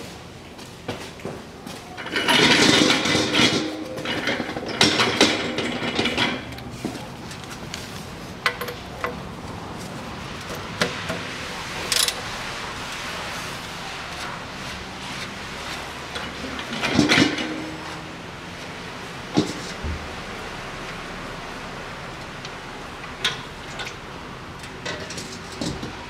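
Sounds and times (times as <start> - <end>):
metal tools clattering: 2.0 - 7.0, 16.2 - 18.2, 24.7 - 26.0.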